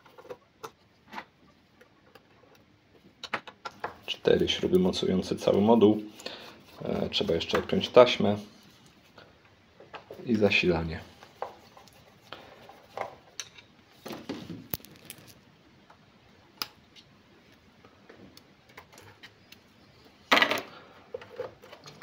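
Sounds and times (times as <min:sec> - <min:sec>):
rustling scrape: 0:13.9 - 0:15.4.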